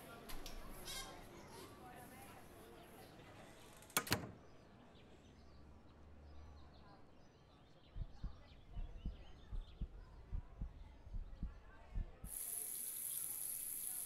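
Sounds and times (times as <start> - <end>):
soft low thuds: 7.9 - 12.3.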